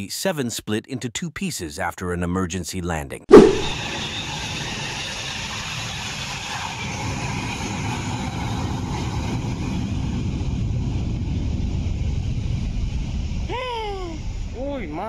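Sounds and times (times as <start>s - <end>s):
jet engines rumbling: 3.3s - 15.0s.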